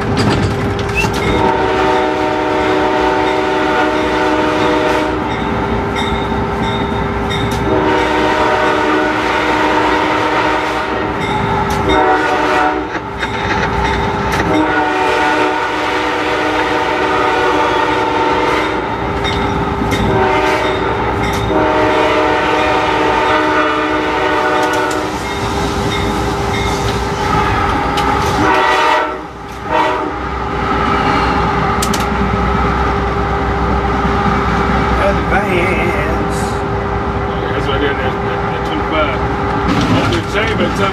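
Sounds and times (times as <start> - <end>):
moving locomotive running noise: 0.0 - 40.9
locomotive air horn blasts: 1.3 - 5.3, 7.6 - 11.2, 11.9 - 13.0, 14.4 - 19.0, 20.1 - 25.2, 28.4 - 30.2.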